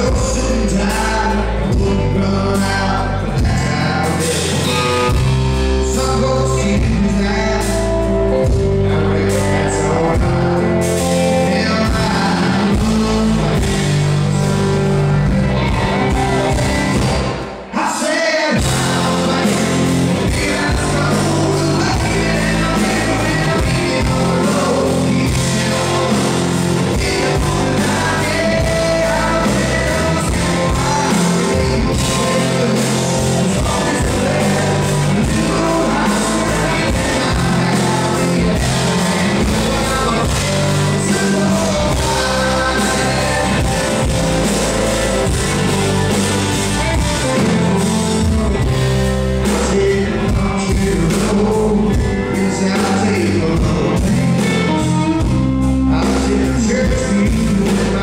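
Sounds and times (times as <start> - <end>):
drums keeping a steady beat: 0.0 - 17.6, 18.6 - 58.0
electric guitar: 0.0 - 58.0
male lead vocal: 0.0 - 58.0
strummed acoustic guitar: 18.5 - 58.0.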